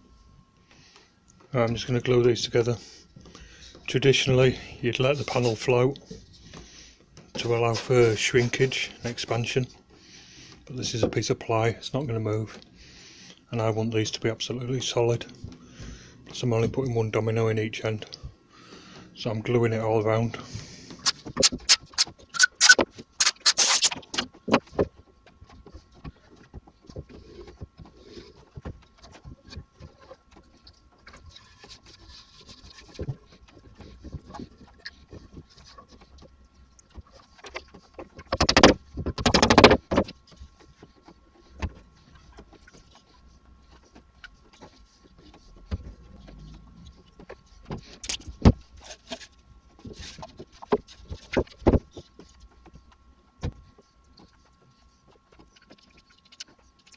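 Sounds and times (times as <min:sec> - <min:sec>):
rapid clicking and scraping: 0:20.2 - 0:56.9.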